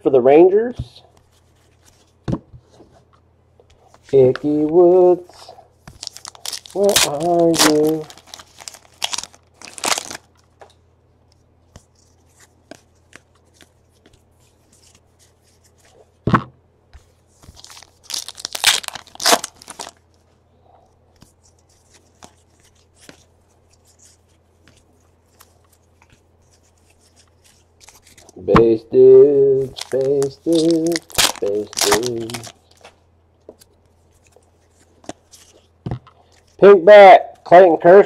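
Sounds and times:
cards shuffled: 0:03.7 - 0:10.7, 0:11.7 - 0:16.1, 0:17.0 - 0:20.3, 0:21.1 - 0:28.6, 0:29.5 - 0:36.6
plastic wrapper crinkling: 0:05.3 - 0:10.6, 0:17.4 - 0:20.2, 0:21.2 - 0:28.4, 0:29.5 - 0:33.0
plastic wrapper tearing: 0:05.9 - 0:10.4, 0:17.5 - 0:20.0, 0:29.6 - 0:32.9.

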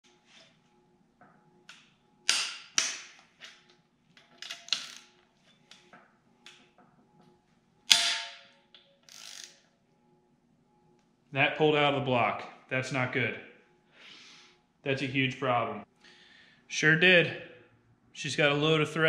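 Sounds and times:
wrench clicking and clanking on metal: 0:02.3 - 0:05.1.

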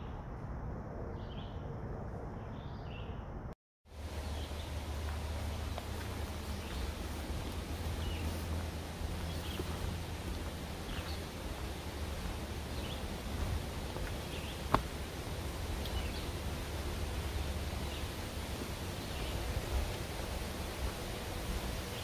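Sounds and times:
steady low rumble: 0:00.0 - 0:22.0.

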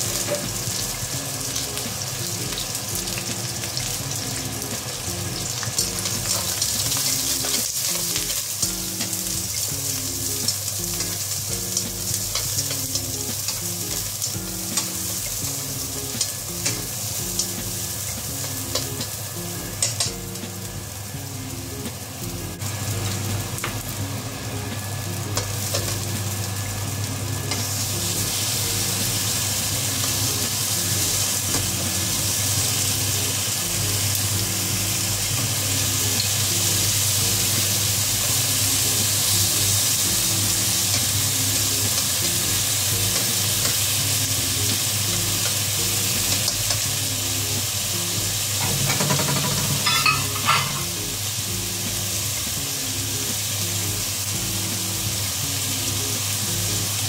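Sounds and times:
food sizzling in oil: 0:00.0 - 0:57.0
chopsticks clattering in pan: 0:19.8 - 0:20.2, 0:48.6 - 0:51.0.

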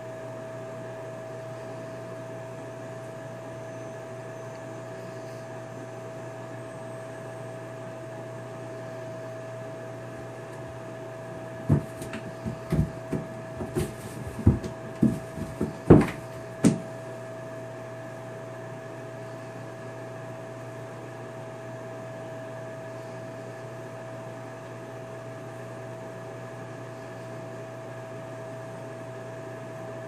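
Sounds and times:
steady hum: 0:00.0 - 0:27.5
kitten thumping in bathtub: 0:11.7 - 0:16.8.

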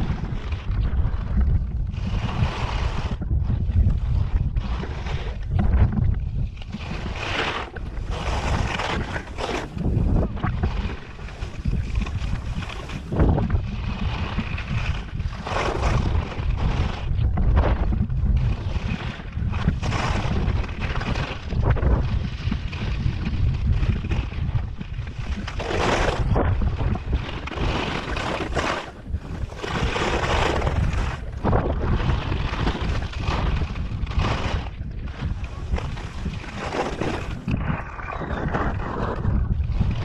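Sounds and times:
wind rumbling on microphone: 0:00.0 - 0:40.0
skis scraping on snow: 0:02.0 - 0:40.0.

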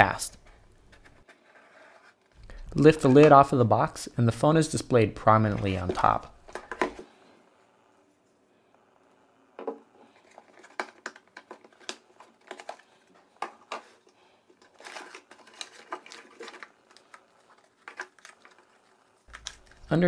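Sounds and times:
packaging taps clicks and rustles: 0:10.2 - 0:19.9.

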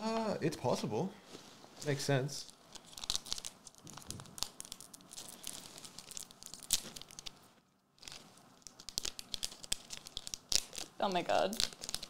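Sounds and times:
wrapper crinkling and tearing: 0:02.4 - 0:07.4, 0:08.0 - 0:12.0.

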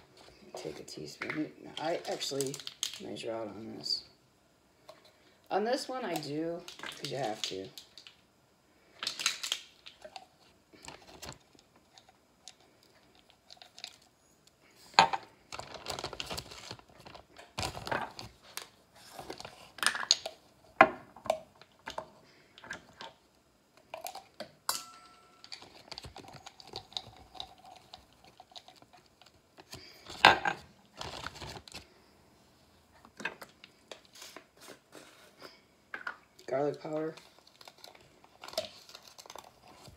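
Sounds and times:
plastic bag crinkling: 0:01.7 - 0:03.6, 0:06.0 - 0:08.2, 0:08.9 - 0:14.1, 0:15.4 - 0:20.2, 0:25.4 - 0:32.0, 0:36.5 - 0:39.9.

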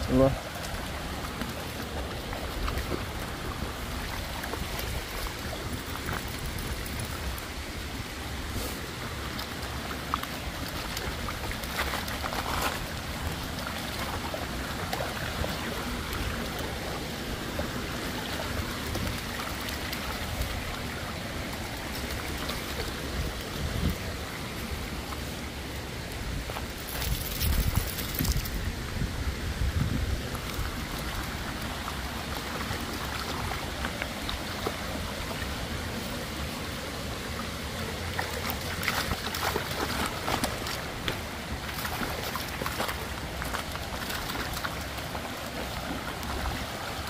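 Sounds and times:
wind rumble on microphone: 0:22.8 - 0:24.3, 0:26.1 - 0:31.6.

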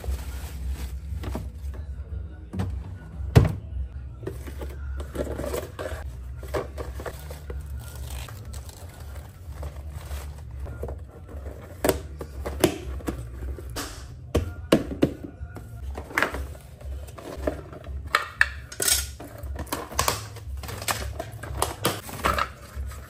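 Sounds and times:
vegetables rustling: 0:00.0 - 0:01.6
plastic containers scraping and clicking: 0:15.8 - 0:23.0.

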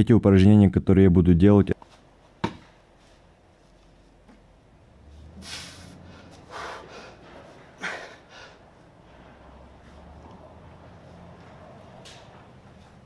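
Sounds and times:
man exhaling sharply through nose: 0:05.3 - 0:07.2.

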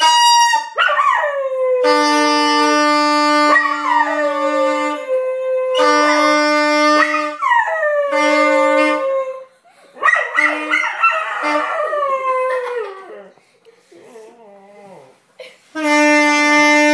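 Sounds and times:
saxophone held notes: 0:01.8 - 0:07.4, 0:15.7 - 0:16.9.

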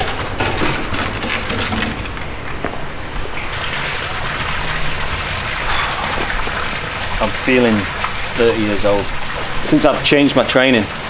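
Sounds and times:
fountain water splashing: 0:03.0 - 0:11.0.

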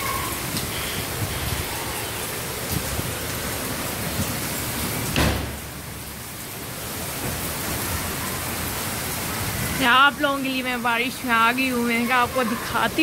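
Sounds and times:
heavy rain: 0:00.0 - 0:13.0
dull thump: 0:05.1 - 0:05.6.

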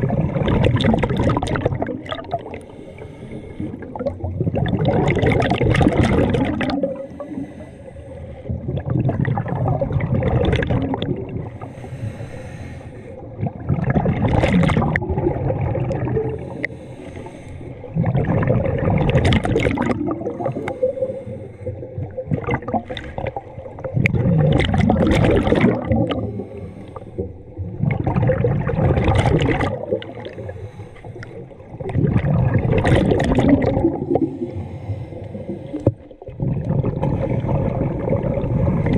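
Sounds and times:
exhaled bubbles gurgling: 0:00.0 - 0:12.3, 0:13.0 - 0:38.9
diver inhaling through regulator: 0:02.4 - 0:04.0, 0:06.9 - 0:08.7, 0:11.3 - 0:13.4, 0:16.3 - 0:18.0, 0:20.2 - 0:22.1, 0:26.0 - 0:27.5, 0:30.2 - 0:31.7, 0:34.0 - 0:36.1.

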